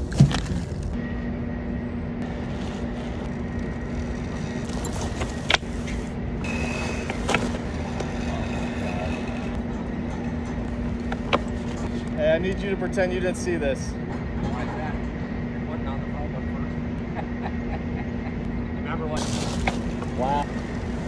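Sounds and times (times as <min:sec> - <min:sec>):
heavy tarp rustling: 0:19.2 - 0:20.3.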